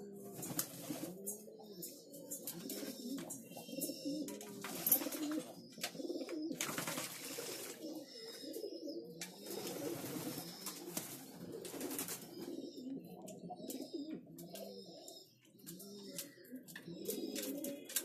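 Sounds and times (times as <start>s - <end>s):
pigeons cooing: 0.0s - 18.0s.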